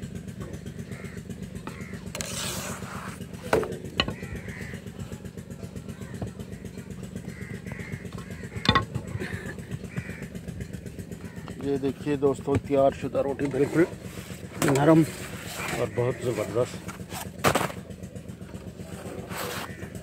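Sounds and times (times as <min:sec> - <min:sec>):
low pulsing engine-like drone: 0:00.0 - 0:20.0.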